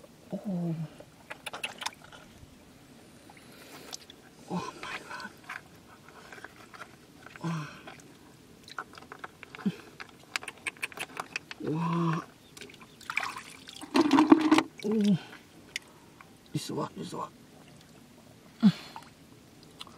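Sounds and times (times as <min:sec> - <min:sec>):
mussel shells clicking together: 0:08.7 - 0:11.6
water splashing: 0:12.6 - 0:15.3.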